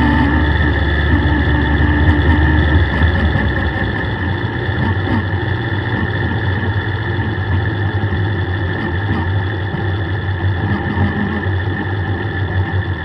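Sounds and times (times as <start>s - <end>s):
car engine running at low revs: 0.0s - 13.0s.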